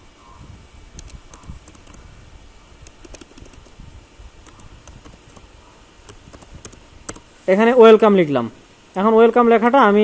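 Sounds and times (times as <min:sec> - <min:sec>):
computer keyboard keystrokes: 0:01.0 - 0:02.0, 0:02.8 - 0:03.8, 0:04.4 - 0:07.3.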